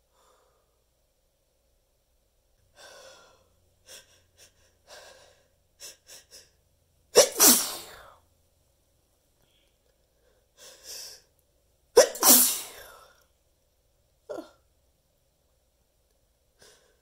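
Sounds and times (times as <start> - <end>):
person sneezing loudly: 7.2 - 8.2, 12.0 - 13.1.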